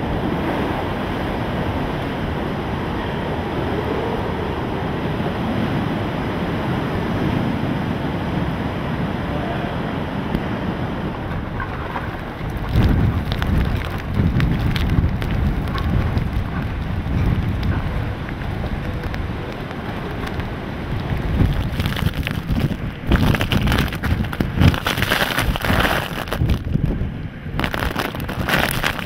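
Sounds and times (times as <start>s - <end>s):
wind gusts on microphone: 0.0s - 29.0s
rain spattering: 10.3s - 29.0s.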